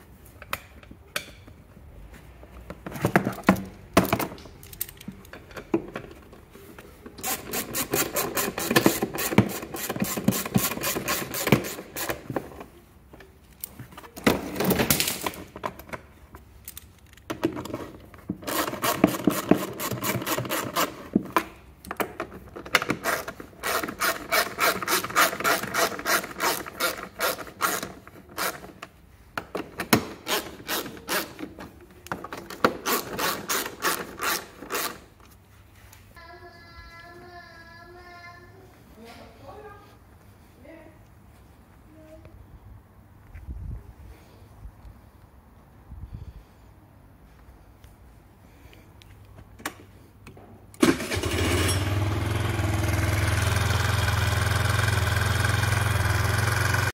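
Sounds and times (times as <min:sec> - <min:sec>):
hand ratchet clicking: 0:07.2 - 0:12.3, 0:18.5 - 0:21.4, 0:22.7 - 0:28.9, 0:30.1 - 0:31.5, 0:32.5 - 0:35.0.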